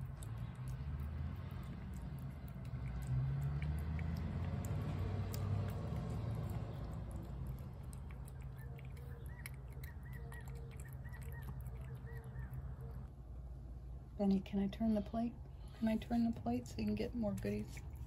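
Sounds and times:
cat chewing wet food: 0.0 - 13.1, 17.4 - 18.0
low background rumble: 0.0 - 18.0
bird chirping: 4.8 - 13.1.

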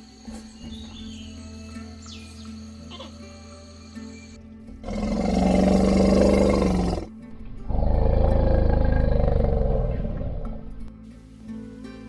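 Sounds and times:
elephant roaring: 4.8 - 10.8.

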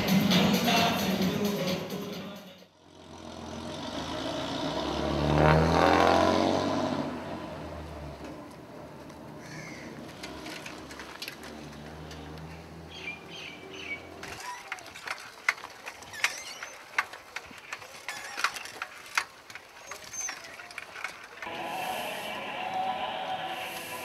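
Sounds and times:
vehicle engine humming: 2.7 - 17.7, 19.5 - 24.0
birds chirping: 12.1 - 14.8.

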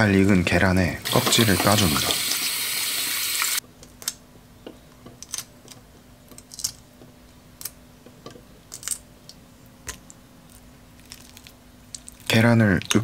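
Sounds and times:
running tap water: 1.0 - 3.6
eggshells cracking and peeling: 5.2 - 6.9, 7.5 - 7.8, 8.6 - 13.0.

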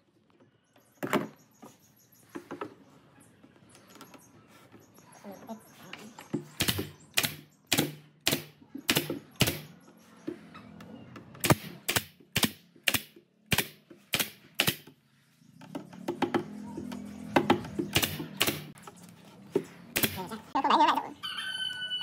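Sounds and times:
nail gun firing into wood: 6.6 - 9.7, 11.4 - 14.9, 17.4 - 18.7, 20.0 - 20.3.

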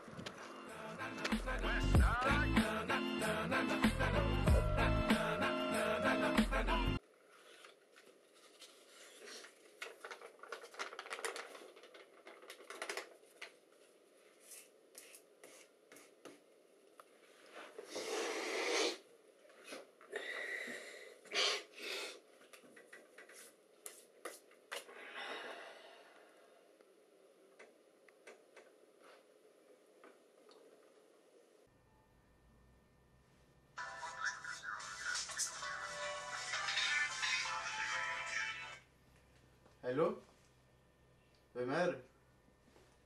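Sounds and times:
music: 0.0 - 7.0, 33.8 - 38.9.

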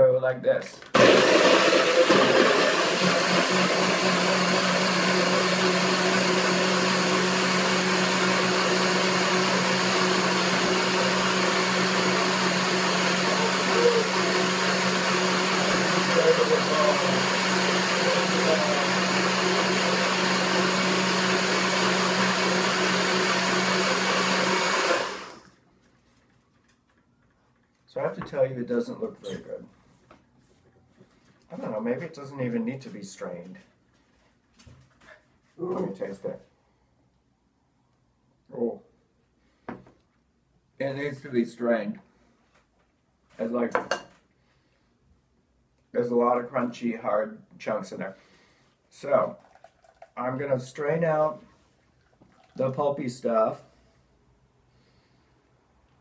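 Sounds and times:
blender motor running: 1.0 - 25.5.

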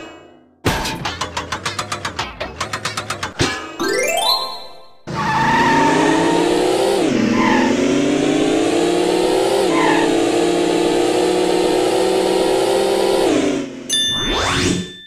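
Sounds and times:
cartoon car engine revving: 5.1 - 14.9.

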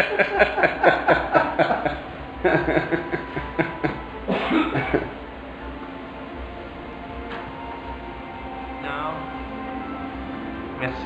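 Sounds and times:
voices talking and chuckling: 0.0 - 4.0.

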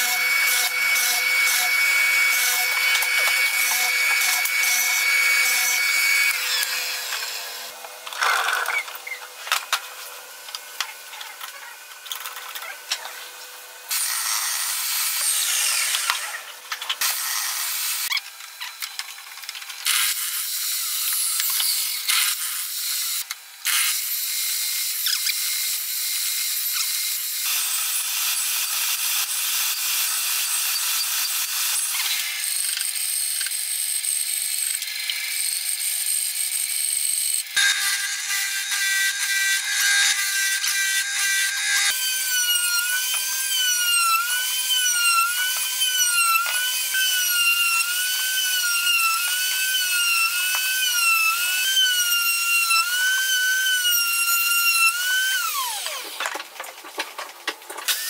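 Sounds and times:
bandsaw cutting wood: 0.0 - 13.3, 13.9 - 56.5
table saw cutting wood: 0.0 - 56.4, 57.8 - 58.0.

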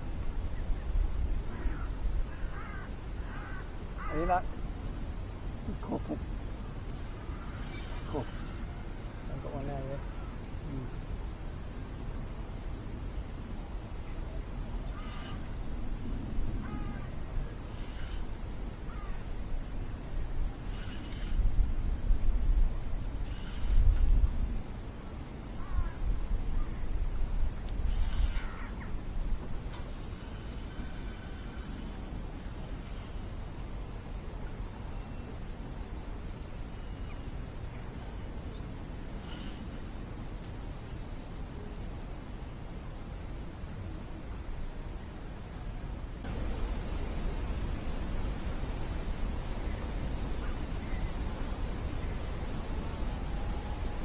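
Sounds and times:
small birds chirping: 0.0 - 23.8, 46.3 - 54.0
low rumbles: 46.2 - 54.0.

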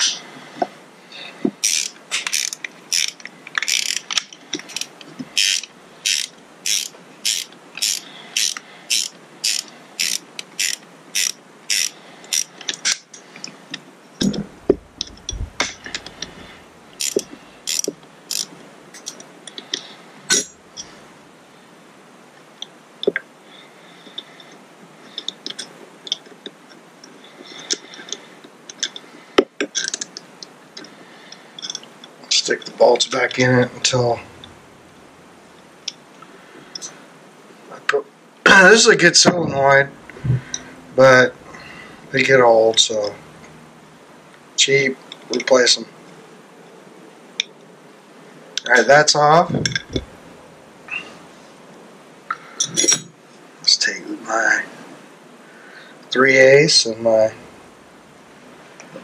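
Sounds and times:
socket ratchet clicking: 1.6 - 13.0, 17.0 - 18.5.

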